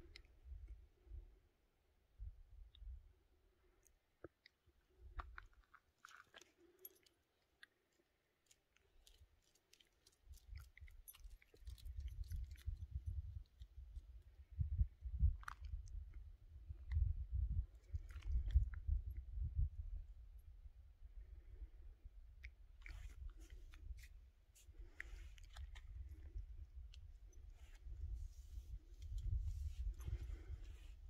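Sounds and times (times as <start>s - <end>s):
wind rumble on microphone: 2.2s - 3.1s, 11.6s - 31.0s.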